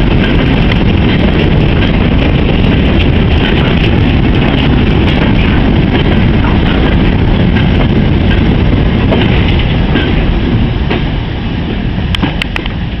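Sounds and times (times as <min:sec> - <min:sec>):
goods train rumbling past: 0:00.0 - 0:13.0
wheels clicking over rail joints: 0:00.0 - 0:13.0.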